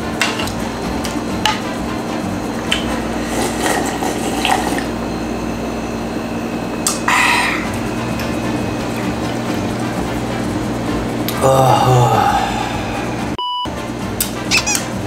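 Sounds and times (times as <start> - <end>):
wet slurping: 2.7 - 5.0.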